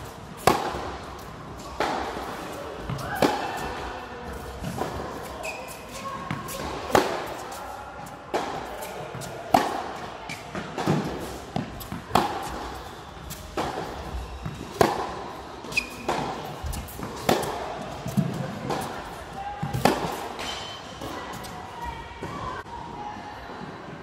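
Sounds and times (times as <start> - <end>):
tennis ball bouncing: 0.4 - 1.0, 8.3 - 19.0, 19.6 - 20.5
tennis racket hitting ball: 0.4 - 3.7, 8.3 - 21.5.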